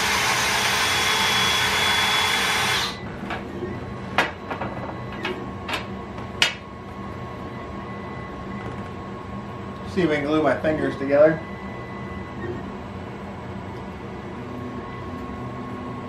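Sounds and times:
cordless drill running: 0:00.0 - 0:03.0.

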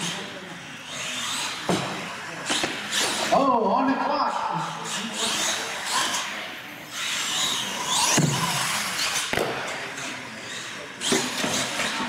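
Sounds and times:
toy truck motor whining: 0:04.8 - 0:09.3.

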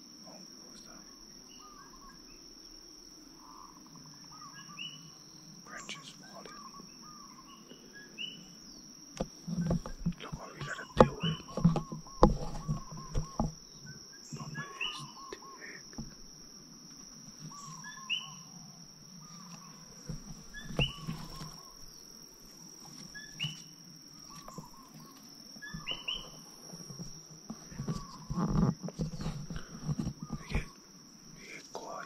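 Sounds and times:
insects trilling: 0:00.0 - 0:32.0
rustling of vegetation: 0:00.0 - 0:32.0
bird chirping: 0:09.5 - 0:16.2, 0:17.4 - 0:22.2, 0:23.1 - 0:26.4, 0:29.2 - 0:30.8.

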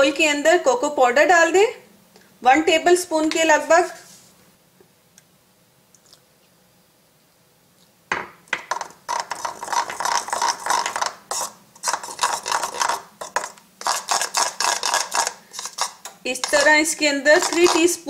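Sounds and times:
metal spoon scraping plastic bowl: 0:08.7 - 0:18.0.

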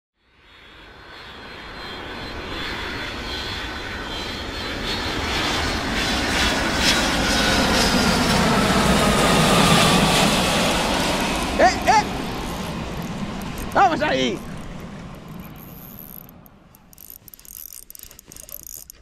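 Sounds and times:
tyre road noise: 0:07.3 - 0:19.0
car engine: 0:08.6 - 0:17.0.

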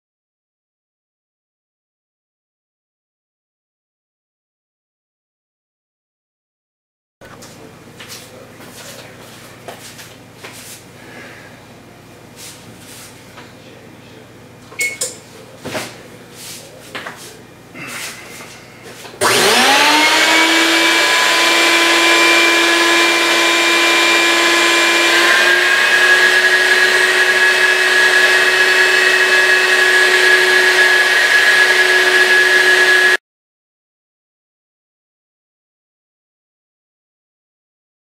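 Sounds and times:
shop vacuum whining: 0:16.6 - 0:33.2.

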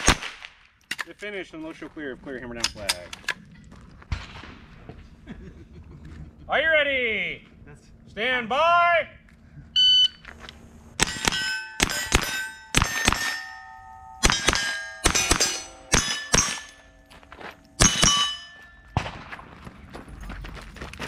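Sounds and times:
rifle shots: 0:00.0 - 0:00.7, 0:11.0 - 0:16.8, 0:17.8 - 0:19.6
steel plate clanging: 0:11.0 - 0:19.0.

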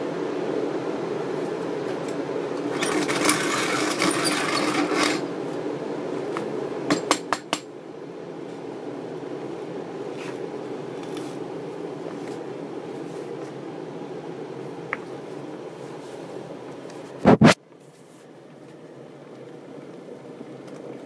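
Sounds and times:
low background noise: 0:00.0 - 0:21.0
coffee grinder rattling: 0:02.7 - 0:05.2.

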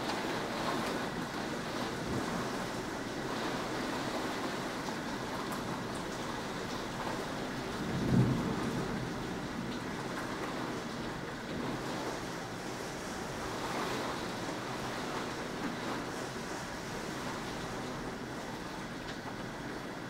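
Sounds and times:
heavy rain falling: 0:00.0 - 0:20.0
thunder rumbling: 0:05.8 - 0:12.5.

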